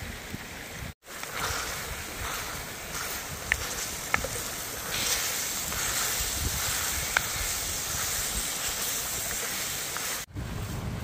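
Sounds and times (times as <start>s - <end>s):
wind rumbling on microphone: 0.0s - 11.0s
wooden spatulas stirring: 1.1s - 10.3s
chicken sizzling in a pan: 1.2s - 10.3s.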